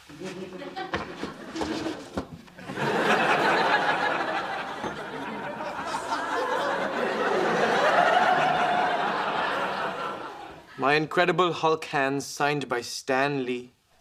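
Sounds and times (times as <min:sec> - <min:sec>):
audience laughter: 0:00.1 - 0:10.8.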